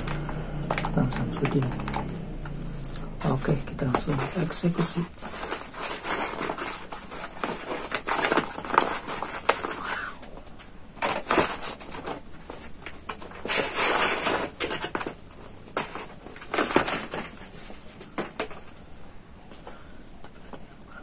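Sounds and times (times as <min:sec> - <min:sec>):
paper wrapping crinkling: 0:00.0 - 0:19.7.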